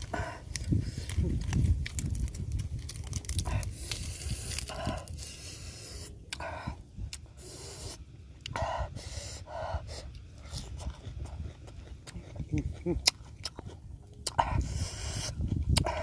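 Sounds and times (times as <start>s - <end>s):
lettuce leaves crinkling: 0.0s - 6.0s
chewing: 0.0s - 8.7s, 9.4s - 16.0s.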